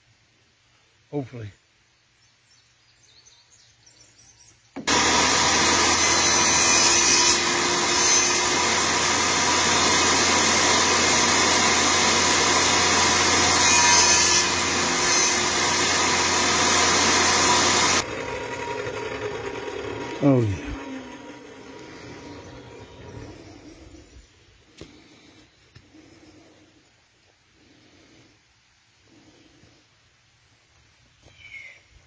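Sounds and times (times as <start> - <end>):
table saw cutting wood: 4.8 - 23.8.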